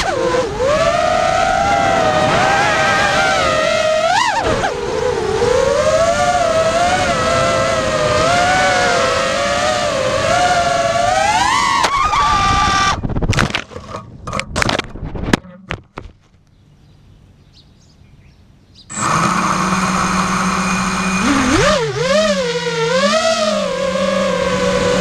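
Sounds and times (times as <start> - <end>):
quadcopter motors whining: 0.0 - 13.1, 18.9 - 25.0.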